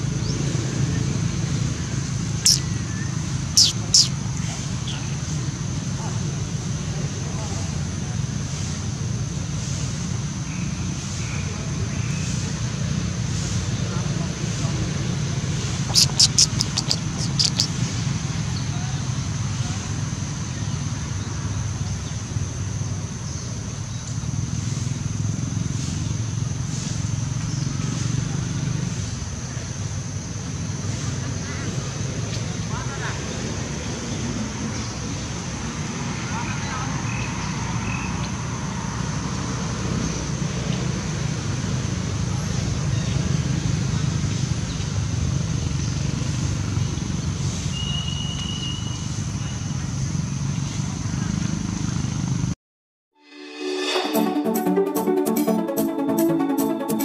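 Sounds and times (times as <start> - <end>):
hiss: 24.5 - 27.4
brief high tone: 53.2 - 57.0.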